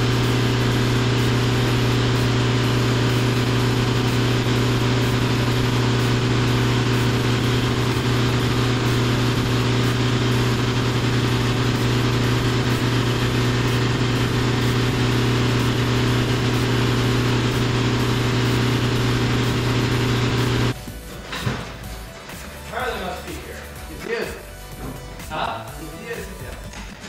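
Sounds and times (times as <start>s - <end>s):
engine humming steadily: 0.0s - 20.8s.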